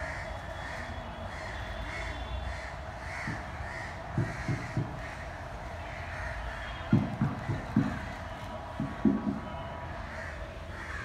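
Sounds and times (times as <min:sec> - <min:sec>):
crows cawing: 0:00.0 - 0:09.0, 0:09.9 - 0:11.0.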